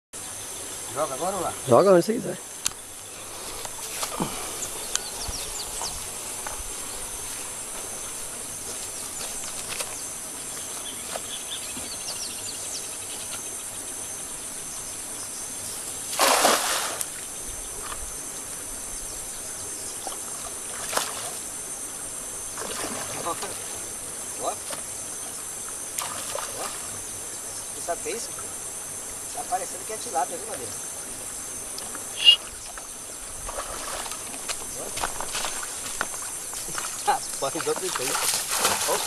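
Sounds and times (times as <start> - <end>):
insect drone: 0.2 - 39.0
net splashing into water: 16.1 - 17.1, 37.9 - 39.0
short bird chirps: 32.1 - 32.6.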